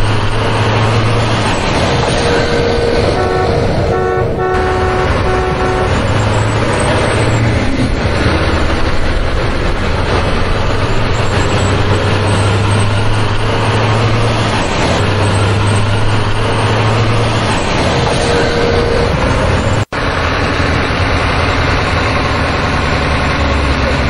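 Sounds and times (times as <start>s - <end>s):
truck engine running: 0.0s - 24.0s
short horn toots: 2.2s - 7.4s, 18.2s - 19.3s.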